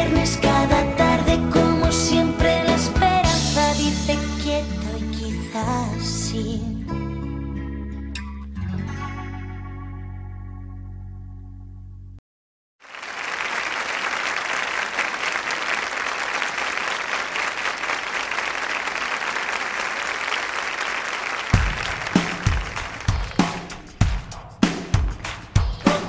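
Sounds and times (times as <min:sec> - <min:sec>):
audience applauding: 0:12.8 - 0:23.8
kick drum beat: 0:21.6 - 0:24.3.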